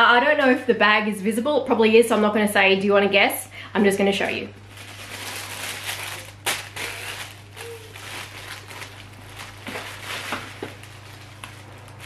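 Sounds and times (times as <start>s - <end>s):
tissue paper rustling: 4.7s - 12.0s.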